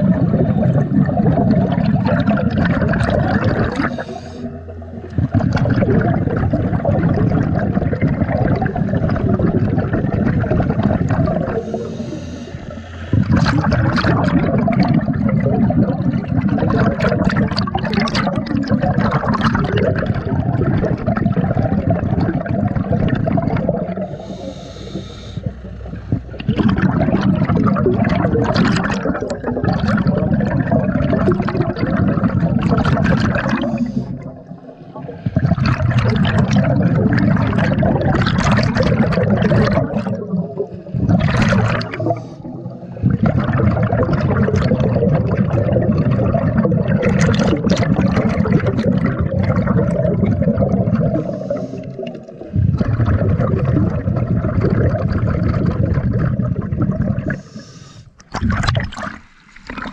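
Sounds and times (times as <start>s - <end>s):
underwater exhaled air bubbling: 0.0s - 59.9s
breath hissing through regulator: 3.6s - 4.7s, 11.5s - 13.6s, 24.0s - 25.8s, 33.4s - 35.6s, 41.9s - 43.1s, 51.0s - 52.8s, 57.2s - 58.2s.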